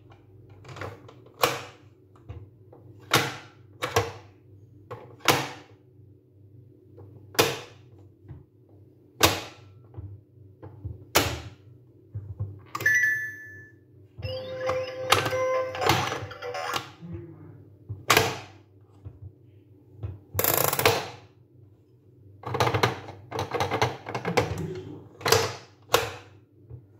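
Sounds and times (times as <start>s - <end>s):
electronic toy tone: 12.8s - 16.9s.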